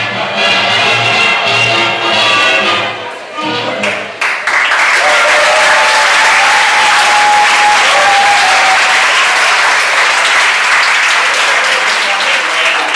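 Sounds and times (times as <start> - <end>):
audience applauding and cheering: 3.8 - 12.9
people whooping: 4.9 - 10.0.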